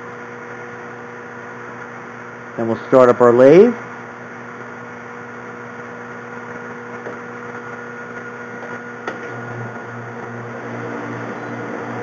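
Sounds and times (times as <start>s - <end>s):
metal lathe humming: 0.0s - 12.0s.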